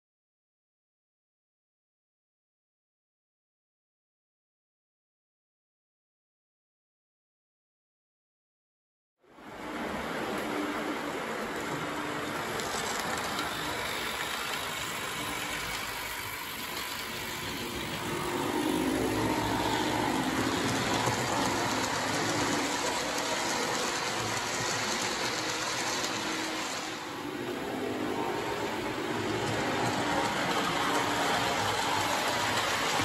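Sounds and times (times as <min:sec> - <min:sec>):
wheels rumbling on rail: 0:09.4 - 0:33.0
model train motor whir: 0:10.4 - 0:33.0.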